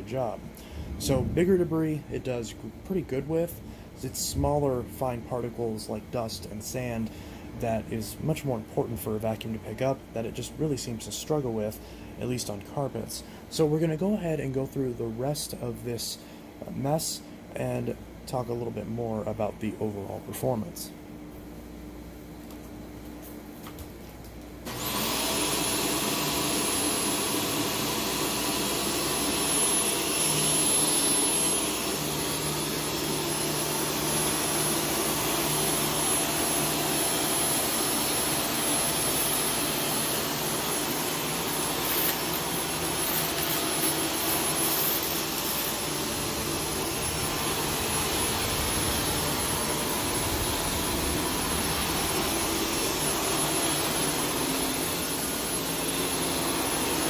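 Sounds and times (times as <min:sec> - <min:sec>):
upright vacuum running: 0:24.6 - 0:57.0.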